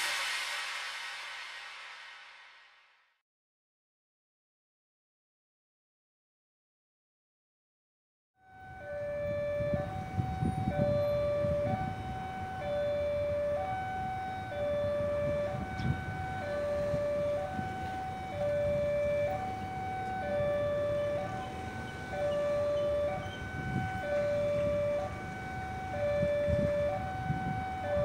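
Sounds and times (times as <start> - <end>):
level crossing two-tone alarm: 8.4 - 28.0.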